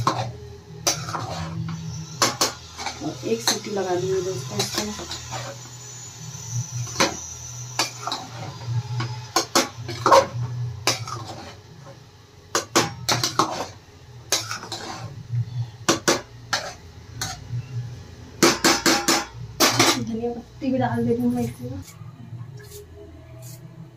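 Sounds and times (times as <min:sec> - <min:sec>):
metal spatula scraping a pot: 0:00.0 - 0:05.7, 0:06.7 - 0:12.0, 0:12.6 - 0:17.7.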